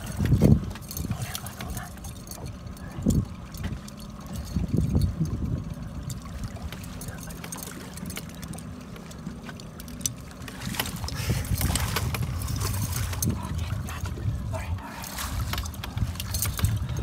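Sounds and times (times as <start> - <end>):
outboard motor idling: 0.0 - 17.0
water splashing against hull: 0.0 - 17.0
fish thrashing in water: 10.3 - 14.1.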